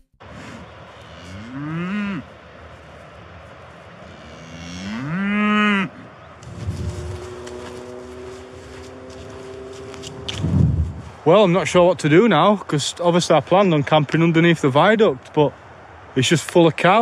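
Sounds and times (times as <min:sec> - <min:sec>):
cow mooing: 0:00.5 - 0:02.3, 0:04.0 - 0:06.0, 0:06.7 - 0:10.1.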